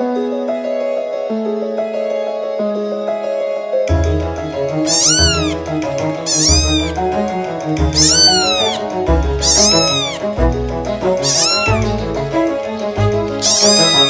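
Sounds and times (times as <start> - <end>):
background music: 0.0 - 14.0
kitten meowing: 4.8 - 7.0, 7.8 - 10.4, 11.0 - 12.0, 13.3 - 14.0.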